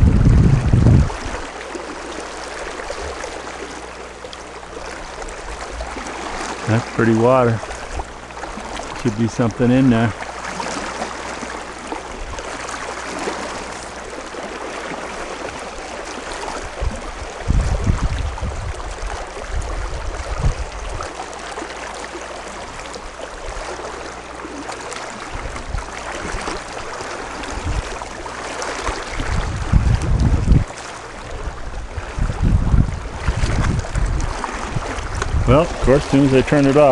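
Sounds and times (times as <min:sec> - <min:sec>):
low rumbling bumps: 0:00.0 - 0:01.4, 0:16.6 - 0:20.9, 0:29.1 - 0:36.9
river water rushing and lapping: 0:00.0 - 0:36.9.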